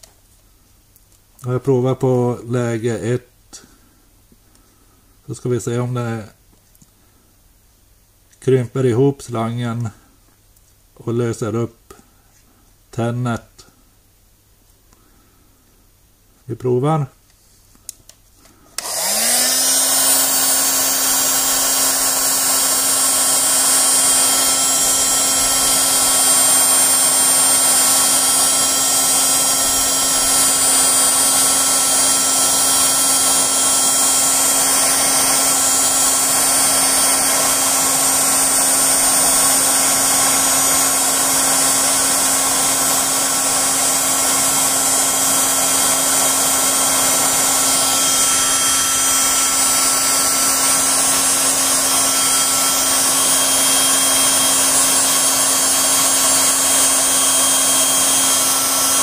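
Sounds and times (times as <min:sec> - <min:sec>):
heat gun fan blowing: 0:17.9 - 0:59.0.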